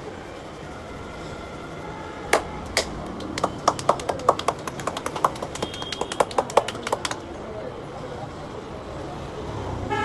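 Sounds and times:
hands slapping scalp: 0:02.8 - 0:07.2.

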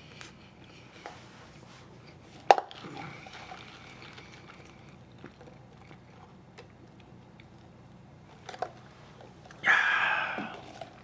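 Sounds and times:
sipping drink through a straw: 0:02.7 - 0:06.2, 0:09.7 - 0:11.0.

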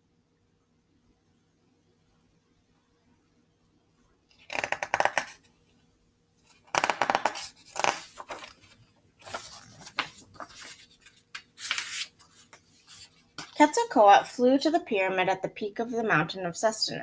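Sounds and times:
paper pages rustling: 0:06.5 - 0:13.6.

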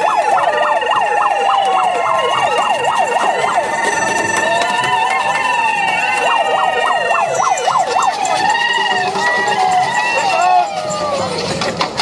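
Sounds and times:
megaphone siren yelp: 0:00.0 - 0:10.9
steady high tones: 0:01.2 - 0:10.7.

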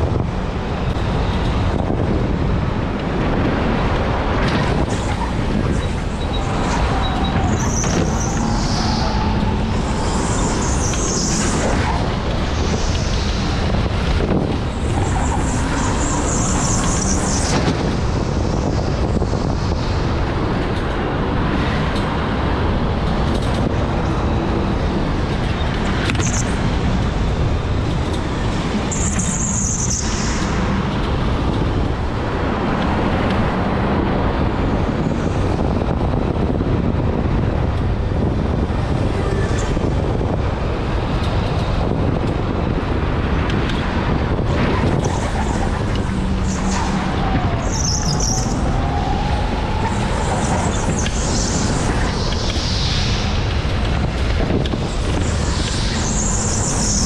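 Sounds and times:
electric go-kart rumbling: 0:00.0 - 0:57.0
high tyre squeals: 0:04.8 - 0:13.8, 0:14.7 - 0:19.3, 0:28.3 - 0:30.9, 0:44.7 - 0:53.5, 0:55.1 - 0:57.0.

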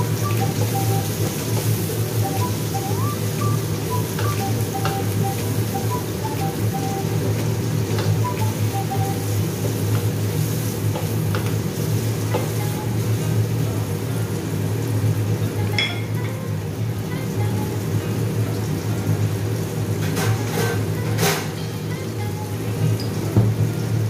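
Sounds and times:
food sizzling in hot oil: 0:00.0 - 0:21.0.

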